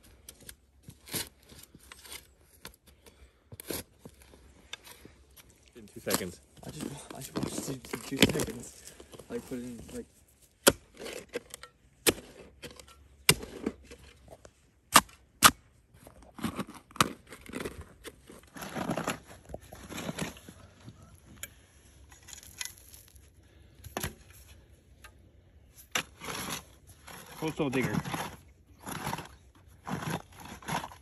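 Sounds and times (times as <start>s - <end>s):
spade scraping through soil: 0.1s - 24.8s, 25.6s - 31.0s
spade striking stony soil: 10.6s - 14.2s, 14.9s - 15.6s, 25.8s - 29.3s.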